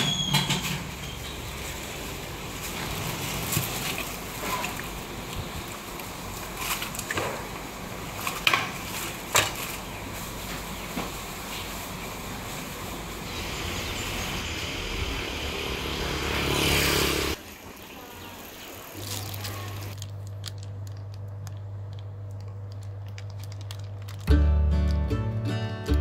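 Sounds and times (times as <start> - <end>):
traffic: 0.0 - 20.0
faint voices: 17.5 - 20.0.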